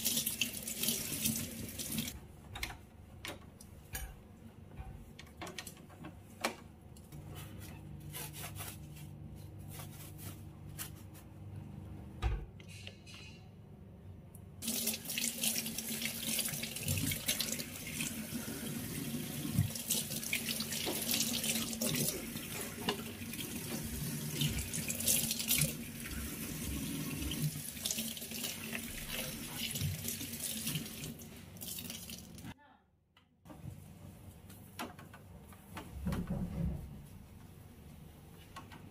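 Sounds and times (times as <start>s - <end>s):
tap water running into sink: 14.6s - 32.4s.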